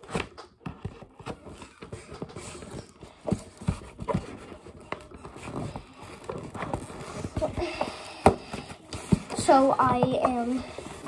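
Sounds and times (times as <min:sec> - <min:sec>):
scissors cutting cardboard: 0:00.0 - 0:07.6.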